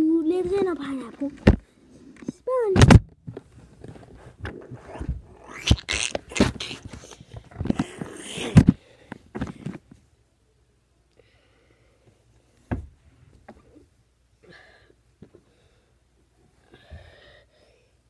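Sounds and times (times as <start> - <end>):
child breathing close to microphone: 16.6 - 18.0.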